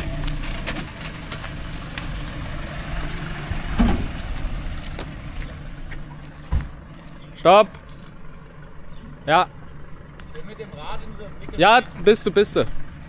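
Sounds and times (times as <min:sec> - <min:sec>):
vehicle engine idling: 0:00.0 - 0:13.0
knocks and clunks: 0:03.4 - 0:06.9
loud thump: 0:03.7 - 0:04.2, 0:06.5 - 0:06.8.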